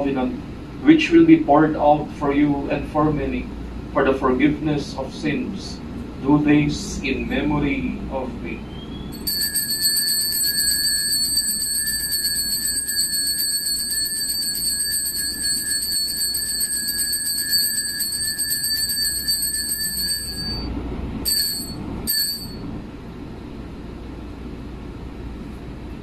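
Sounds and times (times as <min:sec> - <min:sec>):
altar bell ringing: 0:09.2 - 0:22.7.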